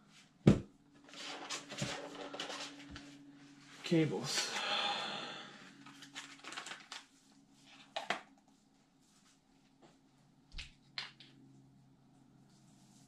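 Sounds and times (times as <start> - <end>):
packaging clicks and rustles: 5.8 - 7.1.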